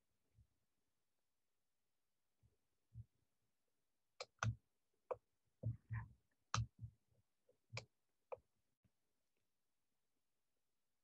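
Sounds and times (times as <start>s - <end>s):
clicks and soft thumps at computer: 2.4s - 3.2s, 4.2s - 8.5s.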